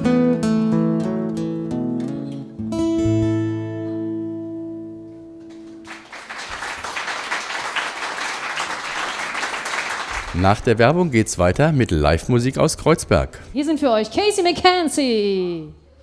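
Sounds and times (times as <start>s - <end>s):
acoustic guitars playing: 0.0s - 6.0s
audience applauding: 5.5s - 10.9s.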